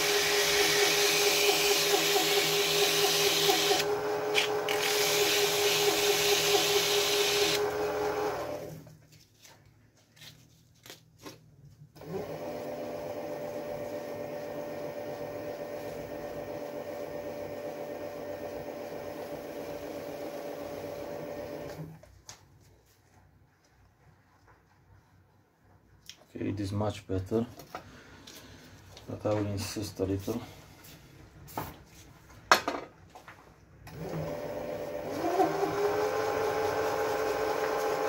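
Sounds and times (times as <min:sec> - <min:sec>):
lathe motor humming: 0:00.0 - 0:08.8, 0:33.9 - 0:38.0.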